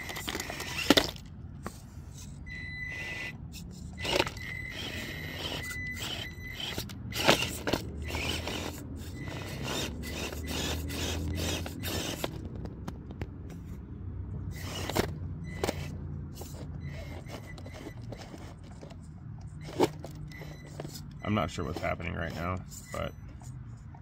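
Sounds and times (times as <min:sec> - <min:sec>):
low drivetrain hum: 0:00.0 - 0:24.0
tyres scraping on stone: 0:04.0 - 0:12.8, 0:14.6 - 0:23.0.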